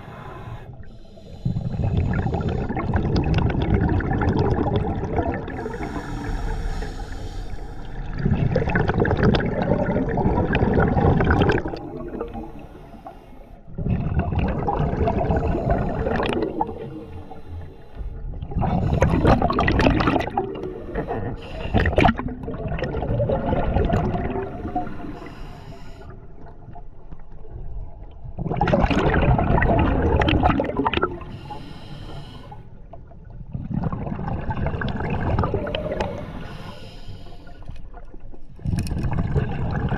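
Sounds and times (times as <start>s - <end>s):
underwater regulator breathing: 0.0s - 3.0s, 5.5s - 8.0s, 20.6s - 22.2s, 24.4s - 26.2s, 31.1s - 32.7s, 35.4s - 37.8s
exhaled bubbles rushing: 1.5s - 6.3s, 7.9s - 12.6s, 13.7s - 17.1s, 18.2s - 25.2s, 26.4s - 31.3s, 33.3s - 36.5s, 37.9s - 39.9s.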